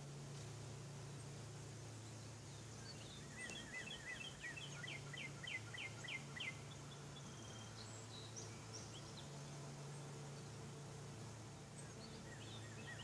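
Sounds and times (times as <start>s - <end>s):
songbird singing: 0.0s - 13.0s
faint bird chirps: 1.9s - 10.5s, 11.6s - 13.0s.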